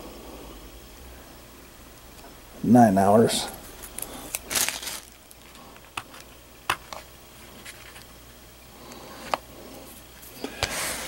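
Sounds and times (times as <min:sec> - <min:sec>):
plastic case rustling: 0:03.9 - 0:08.1.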